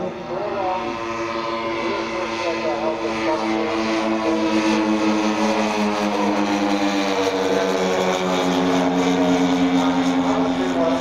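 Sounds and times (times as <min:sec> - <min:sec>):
model plane propeller drone: 0:00.0 - 0:11.0.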